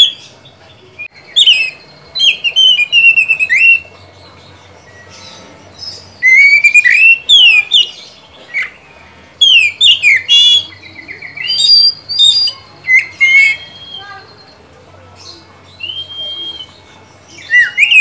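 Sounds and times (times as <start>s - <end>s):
bird singing whistled phrases: 1.0s - 3.9s, 4.9s - 8.8s, 9.4s - 14.6s, 15.7s - 18.0s.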